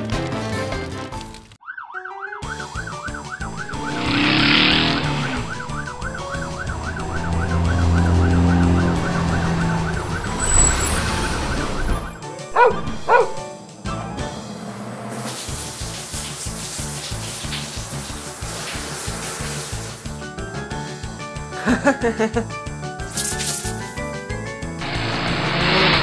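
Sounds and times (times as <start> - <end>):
warbling fire truck siren: 1.6 - 13.4
light background music: 2.0 - 26.0
quick rising chirps: 3.4 - 13.4.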